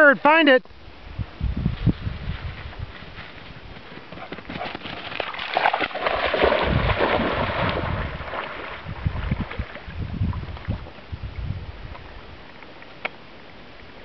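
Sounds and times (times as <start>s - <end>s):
dog splashing through water: 4.5s - 10.8s.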